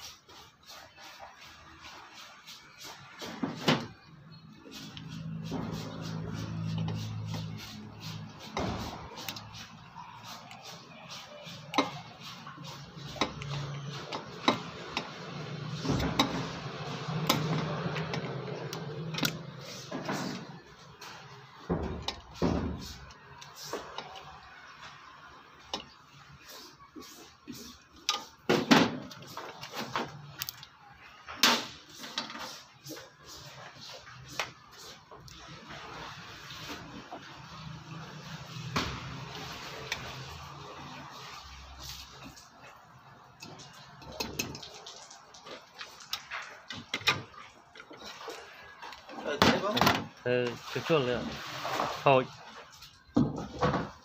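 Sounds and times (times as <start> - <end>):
tools clicking and knocking on metal: 13.1 - 15.1.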